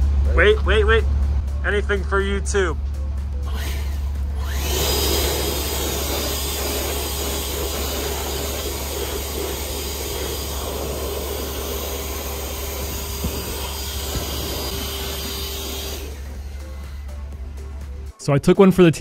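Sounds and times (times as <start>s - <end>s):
leaf blower running: 0.0s - 18.0s.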